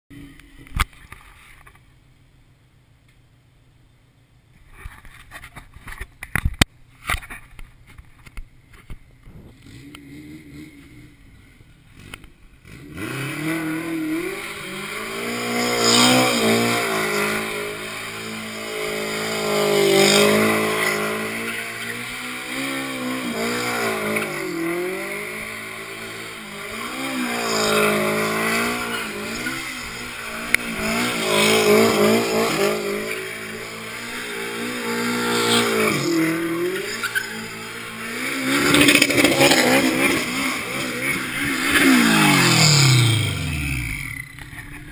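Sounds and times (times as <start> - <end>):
car engine revving hard: 12.6 - 44.2
tyres squealing on asphalt: 12.9 - 44.6.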